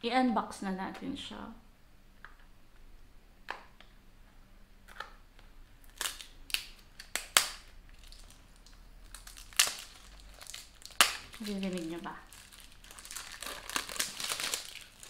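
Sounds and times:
cardboard box crackling and snapping: 5.9s - 15.0s.

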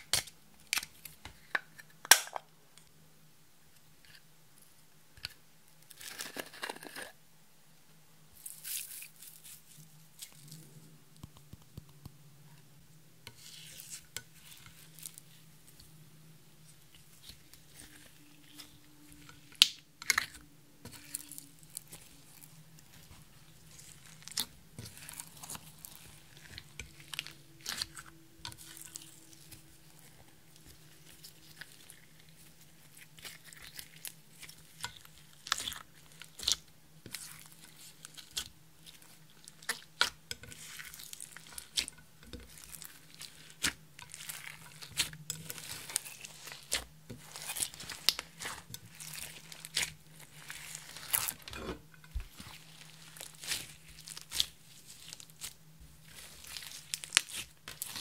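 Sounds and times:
slime wet pops and crackles: 19.5s - 20.4s.

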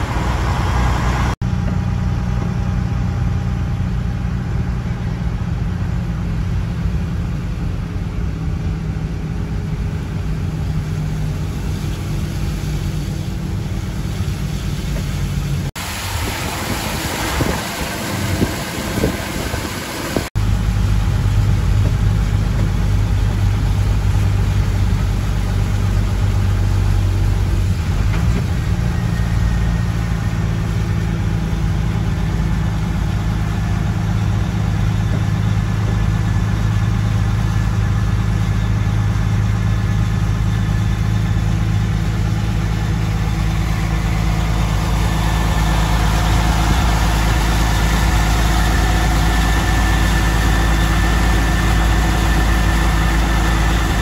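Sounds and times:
truck engine running: 0.0s - 54.0s
tyres hissing through water: 10.9s - 20.3s.

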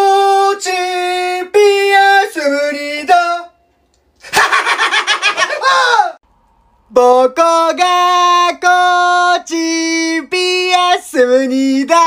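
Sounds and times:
man yelling wavering: 5.6s - 6.2s
man singing chant-like tune: 6.9s - 12.0s.

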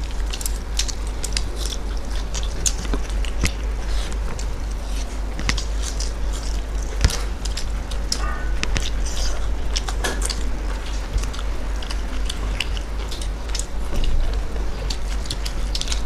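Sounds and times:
chewing and lip smacks: 0.0s - 16.0s
fingers mixing rice on plates: 0.0s - 16.0s
steady low hum: 0.0s - 16.0s.

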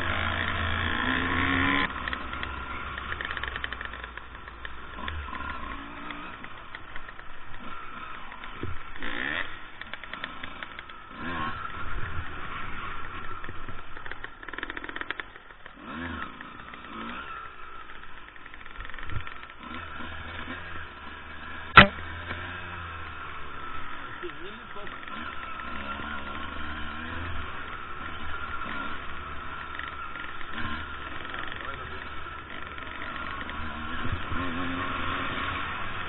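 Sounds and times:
dirt bike engines revving: 0.0s - 36.0s
sharp knock: 21.8s - 22.0s.

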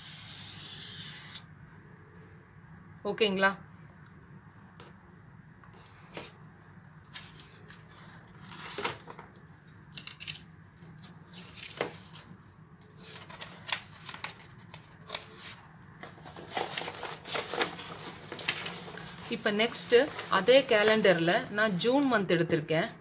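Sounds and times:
paper pages rustling: 7.1s - 9.3s, 13.0s - 21.4s.

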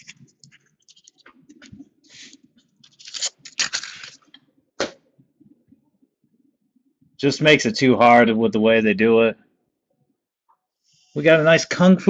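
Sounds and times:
cards and packaging rustling: 0.0s - 4.3s.

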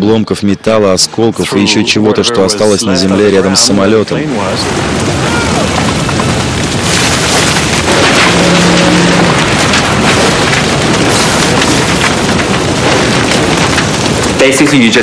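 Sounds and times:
wind: 0.0s - 15.0s
heavy rain: 2.0s - 15.0s.

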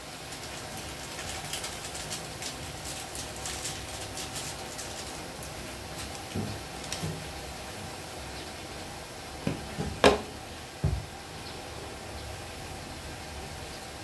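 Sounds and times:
vegetables hissing in a pan: 0.0s - 14.0s
knocks and thumps: 9.4s - 11.2s.

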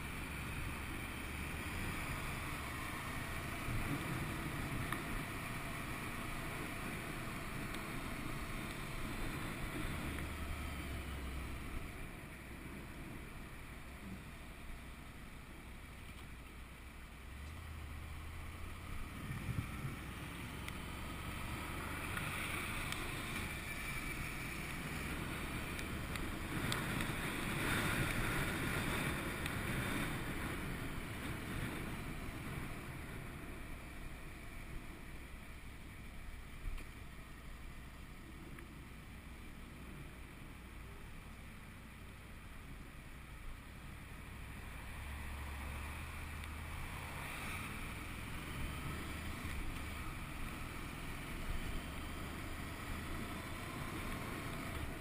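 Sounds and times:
wind rushing over microphone: 18.7s - 34.2s.

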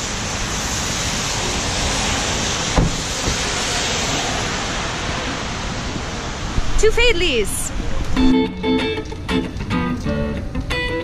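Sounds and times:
rain hissing on wet street: 0.0s - 11.0s
car door shutting: 2.8s - 3.5s.

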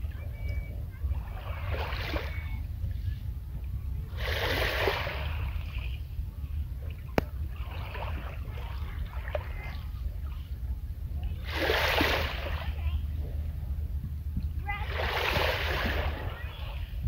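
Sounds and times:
steady low rumble: 0.0s - 17.0s
waves washing over pebbles: 4.1s - 5.8s, 11.4s - 12.9s, 14.7s - 16.5s.

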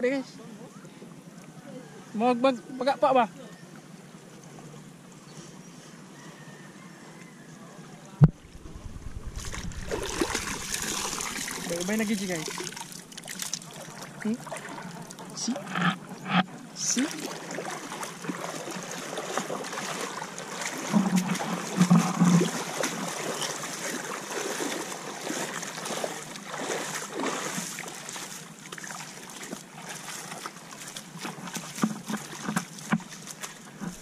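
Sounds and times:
seawater lapping over rocks: 8.2s - 34.0s
splashes of wading: 8.2s - 34.0s.

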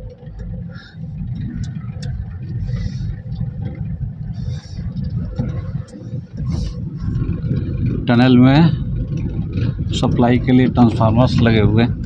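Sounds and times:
car road and engine rumble: 0.0s - 12.0s.

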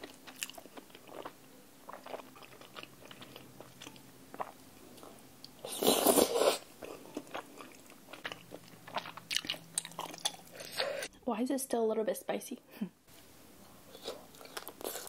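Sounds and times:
close chewing: 0.0s - 5.1s, 6.8s - 11.1s.

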